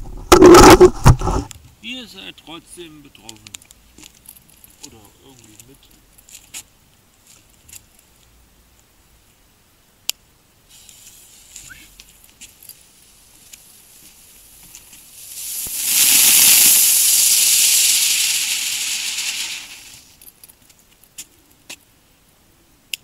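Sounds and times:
firework sparks hissing: 10.7s - 12.1s, 12.8s - 20.2s.

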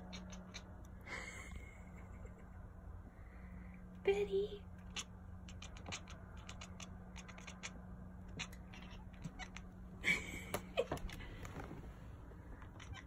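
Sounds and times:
cat chirp: 0.0s - 0.7s, 4.8s - 9.7s, 12.6s - 13.0s
cat chattering clicks: 4.8s - 9.7s.

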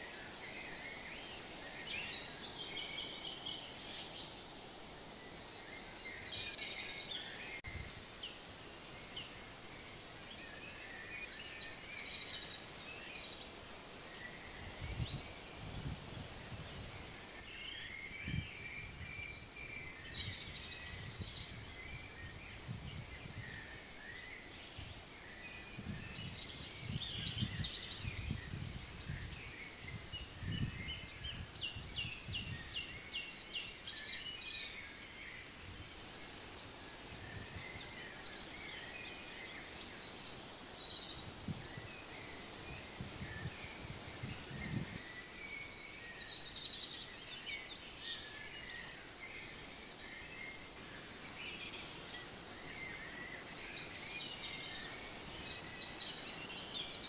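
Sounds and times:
songbirds chirping: 0.0s - 57.0s
wind on microphone: 14.2s - 17.4s, 18.0s - 23.7s, 25.6s - 33.2s, 37.0s - 38.8s, 40.9s - 45.2s.

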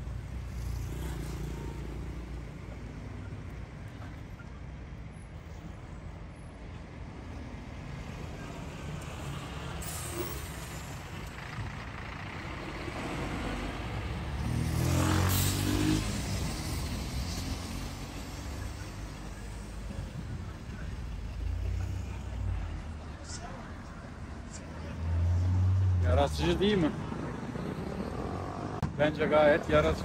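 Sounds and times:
street traffic: 0.0s - 30.0s
bus diesel engine running: 9.2s - 14.5s.

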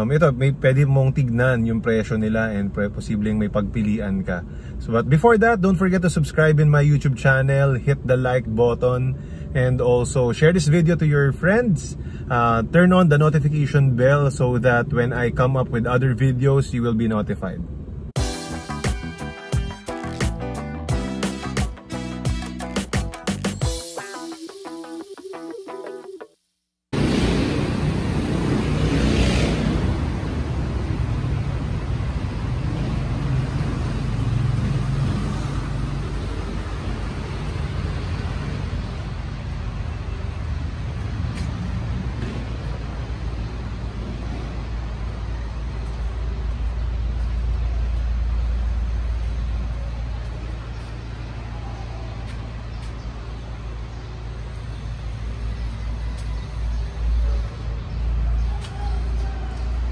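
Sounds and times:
motor vehicle rumble: 26.9s - 59.9s.

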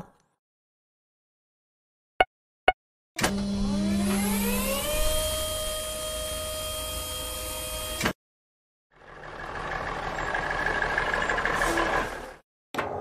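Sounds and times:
cartoon motor whine rising: 3.3s - 8.0s
truck engine: 8.9s - 12.4s.

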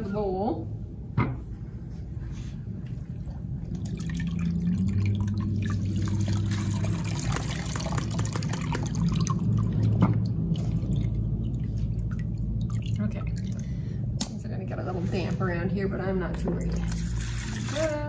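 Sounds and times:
water dripping: 3.1s - 14.4s
water pouring through strainer: 3.6s - 13.7s, 16.6s - 18.0s.

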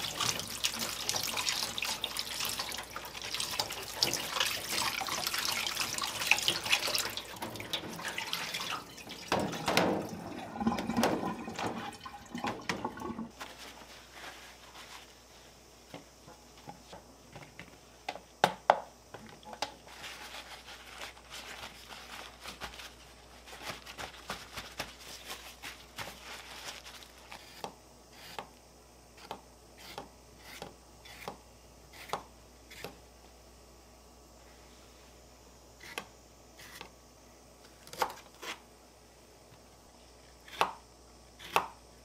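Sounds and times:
paper towel rustling: 13.3s - 15.6s, 19.8s - 27.4s.

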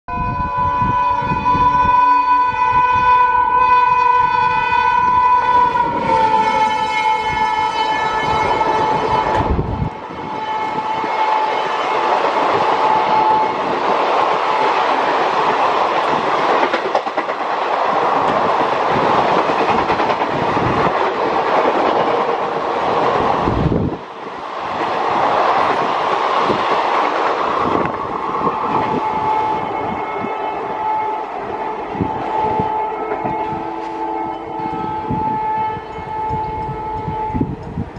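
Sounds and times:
train horn: 0.1s - 13.8s, 28.4s - 37.9s
train wheels rushing on rail: 0.6s - 37.9s.

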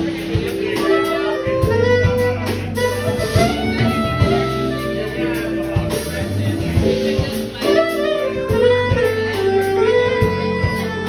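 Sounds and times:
bass notes: 0.0s - 11.0s
electric guitar: 0.0s - 11.0s
saxophone: 0.0s - 11.0s.

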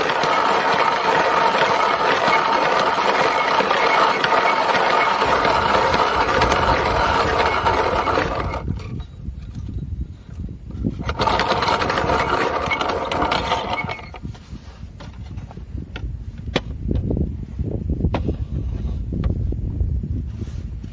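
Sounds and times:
hand coffee mill grinding: 0.0s - 9.1s, 11.0s - 14.3s.

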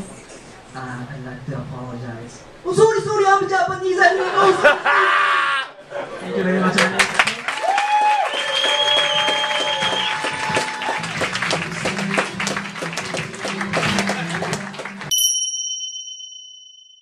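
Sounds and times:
audience clapping and cheering: 6.8s - 15.1s
bright chime ringing: 15.1s - 17.0s
steady held tone: 15.1s - 17.0s.

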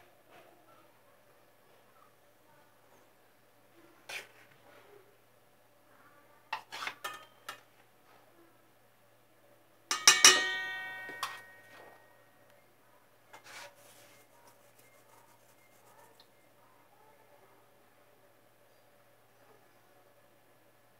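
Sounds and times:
metal spoon clinking on steel bowl: 9.9s - 12.0s.

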